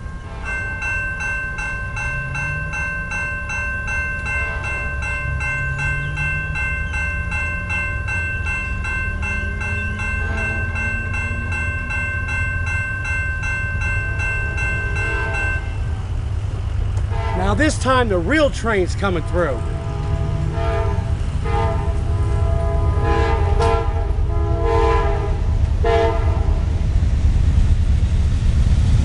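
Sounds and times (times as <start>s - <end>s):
crossing warning bell ringing: 0.0s - 26.7s
low rumble: 19.6s - 29.0s.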